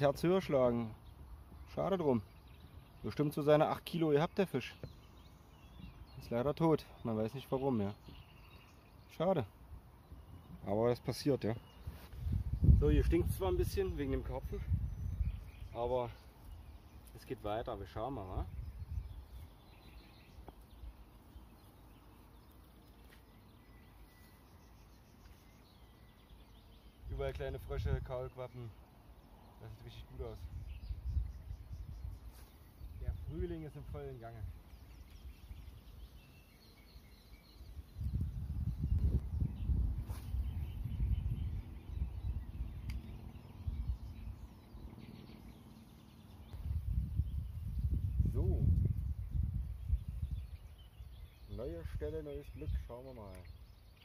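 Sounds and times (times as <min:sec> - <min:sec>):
faint bird chirps: 0:00.0 - 0:54.0
low wind rumble: 0:11.6 - 0:17.0, 0:17.7 - 0:21.1, 0:29.2 - 0:52.8.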